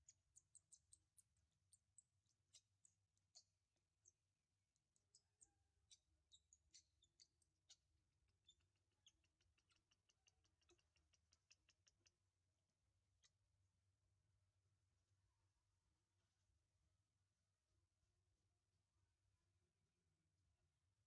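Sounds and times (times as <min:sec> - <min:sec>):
faint high-pitched ticks and chirps: 0:00.0 - 0:13.8.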